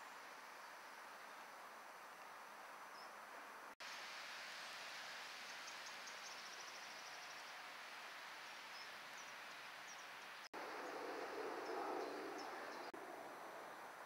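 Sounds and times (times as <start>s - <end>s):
steady hiss: 0.0s - 11.6s
small birds chirping: 8.5s - 13.0s.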